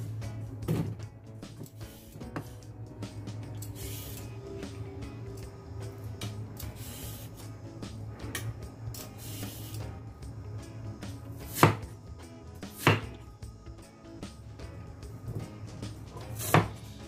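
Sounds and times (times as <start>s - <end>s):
cleaver chopping on chopping block: 11.5s - 11.9s, 12.7s - 13.2s, 16.4s - 16.8s.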